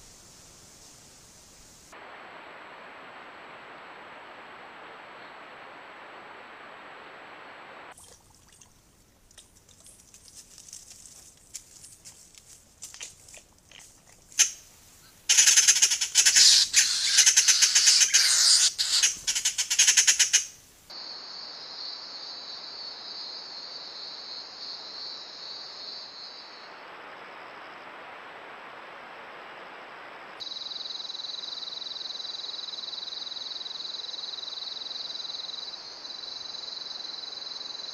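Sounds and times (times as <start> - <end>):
jays squawking: 15.3 - 20.5.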